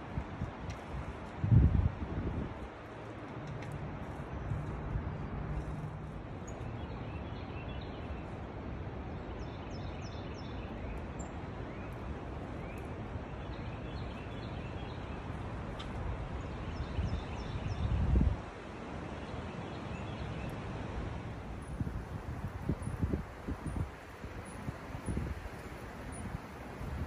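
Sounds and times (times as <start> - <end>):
wind buffeting microphone: 0.0 - 3.2, 15.5 - 18.6, 21.2 - 27.0
wind through trees and leaves: 0.0 - 27.0.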